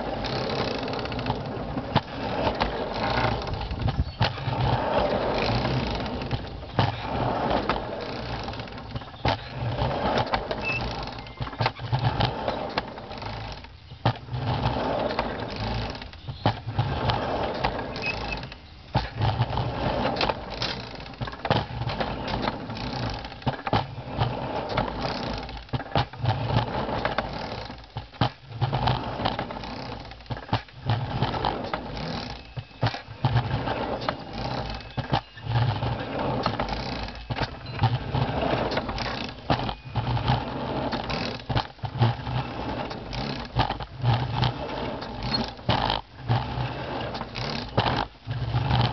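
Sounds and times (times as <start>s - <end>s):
wheels rumbling on rails: 0.0s - 48.9s
sharp clicks and clacks: 42.9s - 46.4s.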